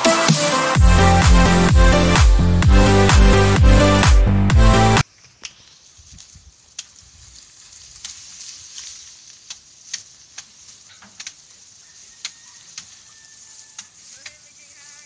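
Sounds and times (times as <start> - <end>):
sharp crackles and snaps: 5.0 - 14.7
steady high hiss: 5.1 - 15.0.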